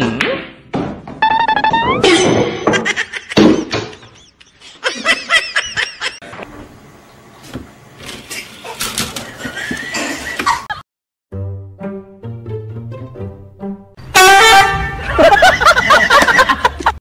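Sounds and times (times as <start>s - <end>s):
person laughing: 2.6s - 6.2s, 14.9s - 17.0s.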